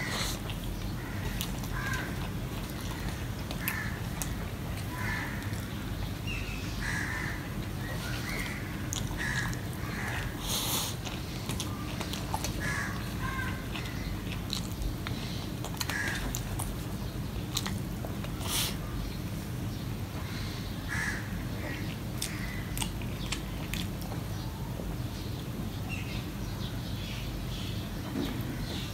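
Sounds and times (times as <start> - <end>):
person chewing: 0.0 - 5.8, 7.6 - 18.8, 21.9 - 24.3
steady low hum: 0.0 - 28.9
crows cawing: 1.0 - 2.2, 3.0 - 4.0, 4.9 - 5.5, 6.8 - 7.5, 8.4 - 10.4, 12.6 - 13.6, 15.9 - 16.3, 20.3 - 22.6.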